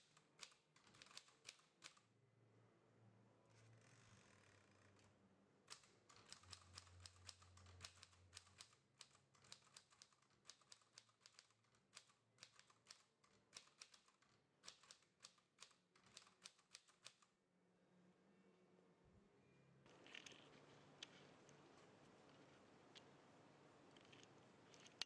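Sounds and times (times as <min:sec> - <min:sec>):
manual typewriter typing: 0:00.0 - 0:02.0, 0:05.7 - 0:17.3.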